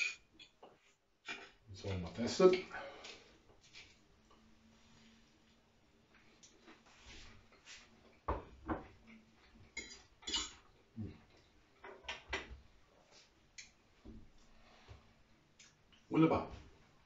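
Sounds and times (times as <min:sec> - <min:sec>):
fork clinking on a plate: 0:00.0 - 0:00.6, 0:09.8 - 0:10.7.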